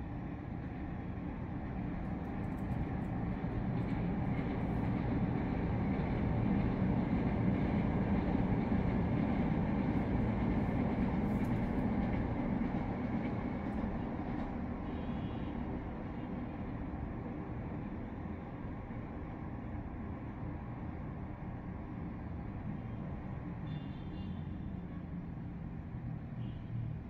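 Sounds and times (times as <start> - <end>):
city traffic hum: 0.0 - 27.0
light-rail train rumble: 0.0 - 27.0.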